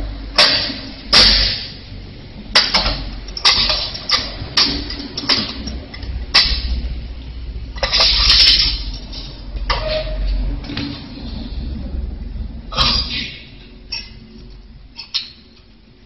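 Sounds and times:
metal clanks and rattling: 2.5 - 6.8, 7.8 - 11.3.

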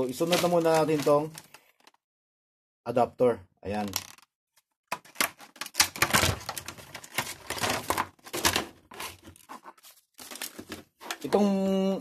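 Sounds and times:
plastic packaging crinkling: 0.0 - 1.6, 5.0 - 10.9.

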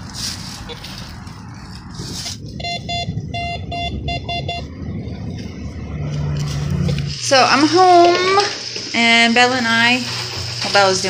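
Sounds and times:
low rumble: 0.0 - 8.3
steady low hum: 0.0 - 10.6
short electronic beeps: 2.6 - 4.7.

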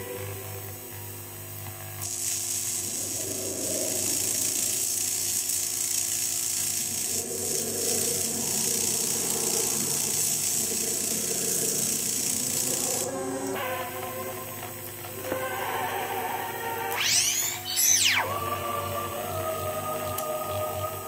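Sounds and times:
high electronic hiss: 1.8 - 21.0
grainy electronic crackle: 2.0 - 13.1, 16.9 - 18.3.

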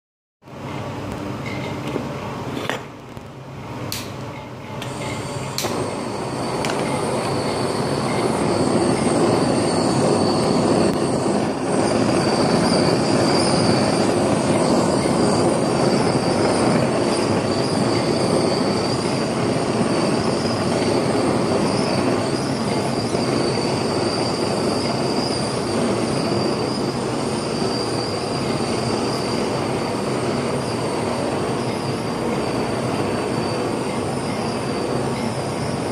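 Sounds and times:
blowtorch igniter clicks: 3.9 - 4.2, 5.6 - 5.8
blowtorch hissing and whistling: 4.8 - 35.9.

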